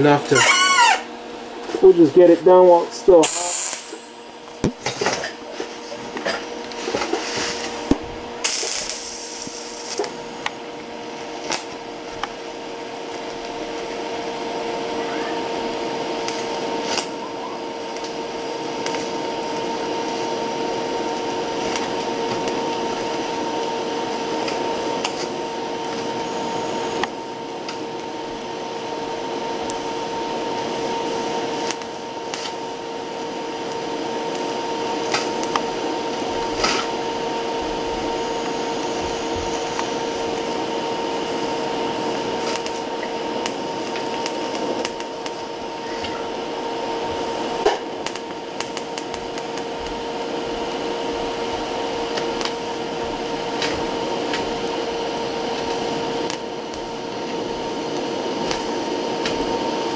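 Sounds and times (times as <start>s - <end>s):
welding arc buzzing and crackling: 0.0s - 59.9s.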